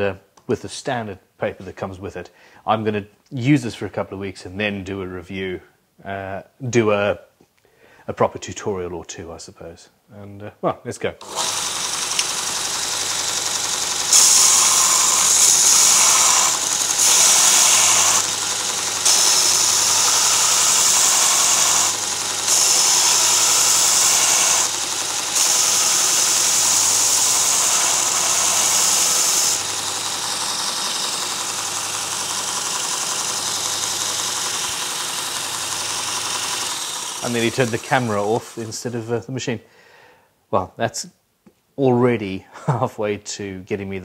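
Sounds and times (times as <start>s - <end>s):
belt sharpener motor running: 11.2s - 38.9s
belt grinding chisel hiss: 11.2s - 39.1s.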